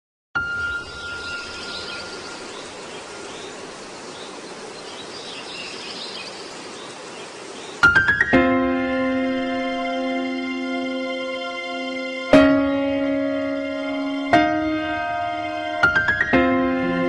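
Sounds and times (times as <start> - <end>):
music: 0.4 - 2.2, 7.8 - 17.0
hiss-like background noise: 0.4 - 17.0.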